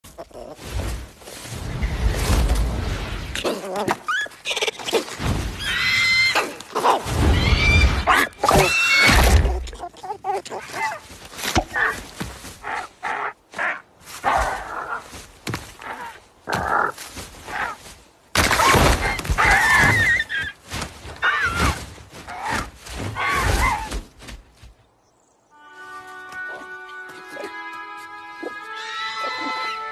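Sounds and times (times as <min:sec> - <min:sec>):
wind gusts: 0:00.1 - 0:09.9
animal squeals and screeches: 0:03.4 - 0:11.1, 0:18.6 - 0:20.6, 0:21.2 - 0:24.0, 0:29.0 - 0:29.9.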